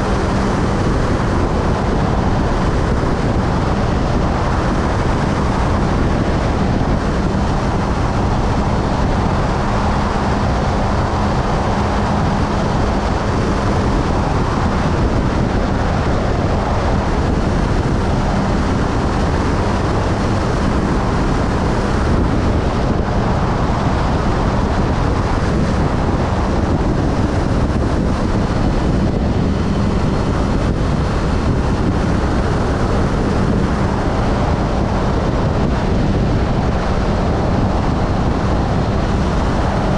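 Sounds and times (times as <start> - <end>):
motorcycle engine drone: 0.0 - 39.9
wind rushing over microphone: 0.0 - 39.9.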